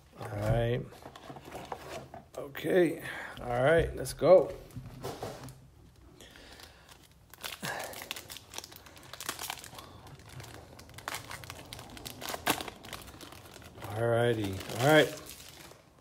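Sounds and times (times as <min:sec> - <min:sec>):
foil wrapper crinkling: 0:06.2 - 0:16.0.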